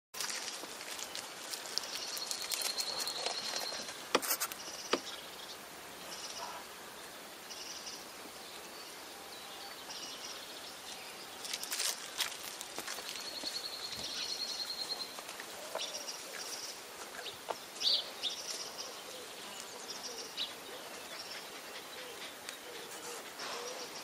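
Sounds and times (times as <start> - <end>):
small birds singing: 0.6 - 24.0.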